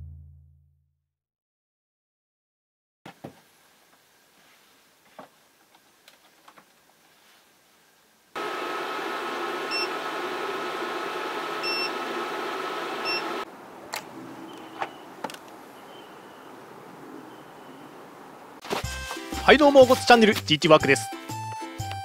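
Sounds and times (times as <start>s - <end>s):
air conditioner whirring: 8.4s - 13.5s.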